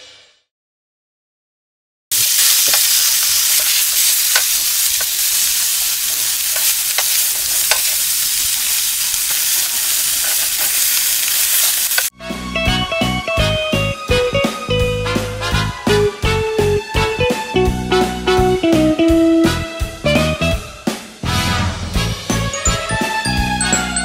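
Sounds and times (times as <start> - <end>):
meat sizzling in frying pan: 2.1 - 12.1.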